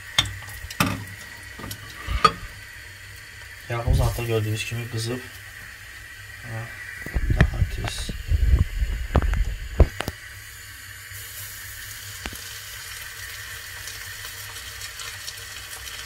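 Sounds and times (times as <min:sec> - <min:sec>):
oil sizzling and bubbling: 0:00.0 - 0:16.0
low knocks and thumps: 0:07.1 - 0:10.0.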